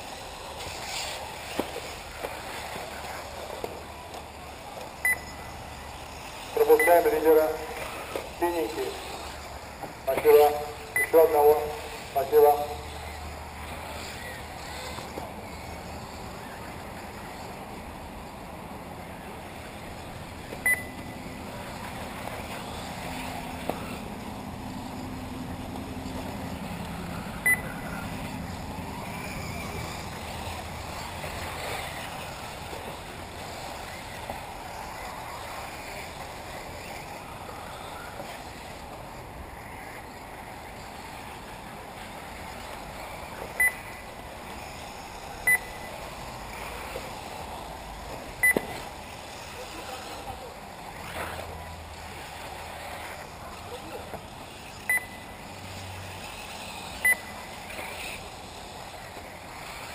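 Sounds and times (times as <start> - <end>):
rc car motor whine: 0.0 - 59.9
short electronic beeps: 5.0 - 5.4, 6.8 - 7.0, 10.9 - 11.3, 20.6 - 21.0, 27.4 - 27.8, 43.6 - 43.9, 45.4 - 45.9, 48.4 - 48.8, 54.9 - 55.2, 57.0 - 57.3.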